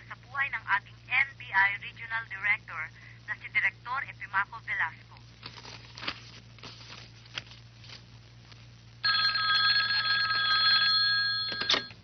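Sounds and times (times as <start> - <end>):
desk telephone ringing: 9.0 - 12.0.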